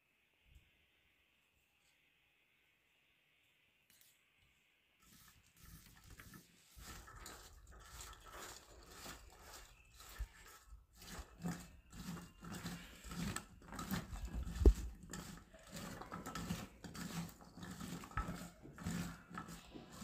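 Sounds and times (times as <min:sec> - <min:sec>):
hands squishing food in a bowl: 0:05.1 - 0:20.0.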